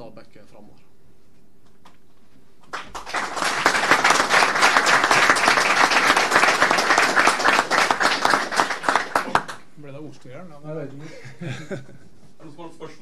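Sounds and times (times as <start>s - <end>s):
crowd applauding: 2.7s - 9.7s.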